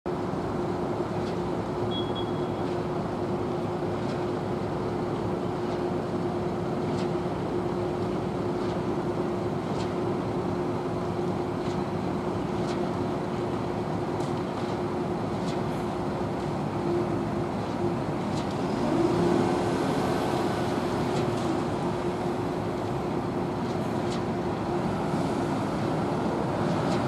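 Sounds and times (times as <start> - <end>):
constant humming tone: 0.1 - 27.0
diesel trucks idling: 13.1 - 27.0.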